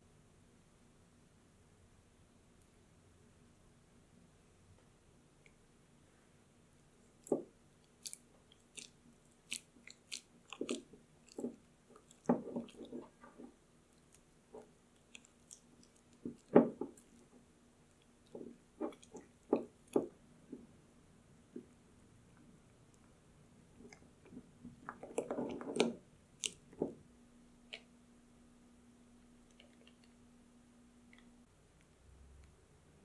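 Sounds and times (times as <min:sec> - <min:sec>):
cream squelching: 0:07.2 - 0:20.2, 0:23.8 - 0:27.0.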